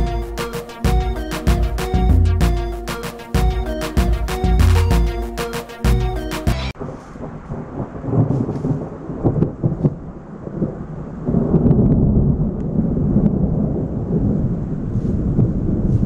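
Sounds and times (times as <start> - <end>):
rolling thunder: 6.8 - 16.0.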